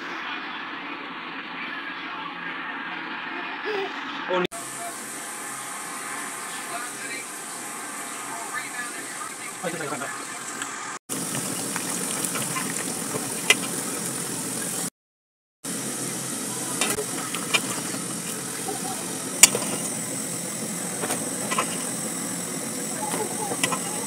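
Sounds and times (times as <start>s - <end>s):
chips sizzling in oil: 10.4s - 14.9s.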